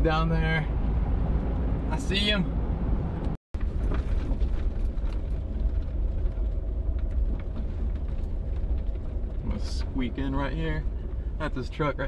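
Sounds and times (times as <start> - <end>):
car engine and road rumble: 0.0 - 12.0.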